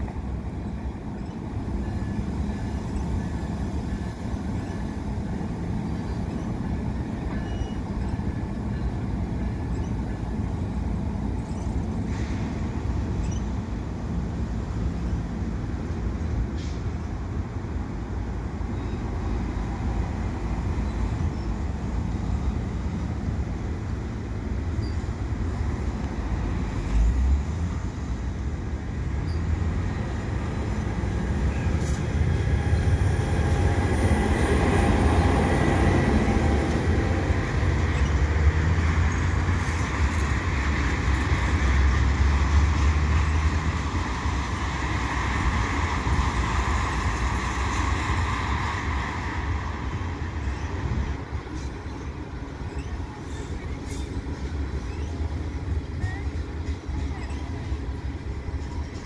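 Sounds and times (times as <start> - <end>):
passenger coach passing: 0.0 - 59.0
steel wheels rumbling on rails: 0.0 - 59.0
high wheel squeal: 7.3 - 9.0.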